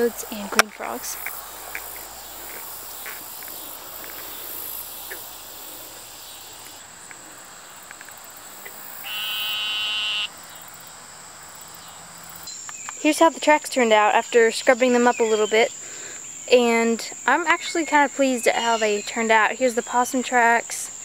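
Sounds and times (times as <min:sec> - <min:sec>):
high insect trill: 0:00.0 - 0:21.0
toad buzzing bleat: 0:09.0 - 0:10.3.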